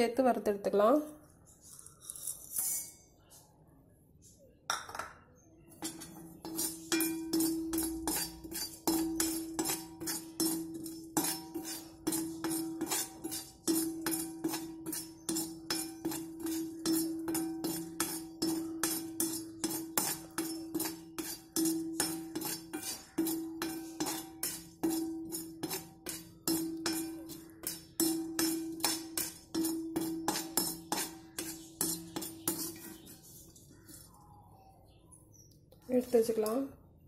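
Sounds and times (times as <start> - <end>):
ladle scraping iron pan: 5.8 - 34.2.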